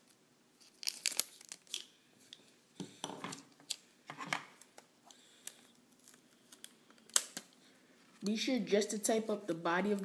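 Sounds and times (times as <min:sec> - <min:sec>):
tape clicking and crinkling: 0:00.0 - 0:02.5, 0:03.3 - 0:07.6.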